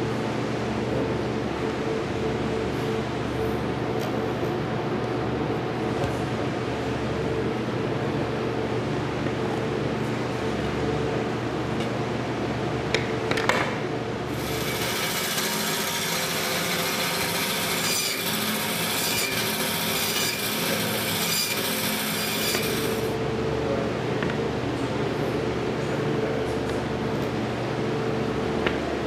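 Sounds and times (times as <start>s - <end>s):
band saw cutting meat: 14.3s - 23.1s.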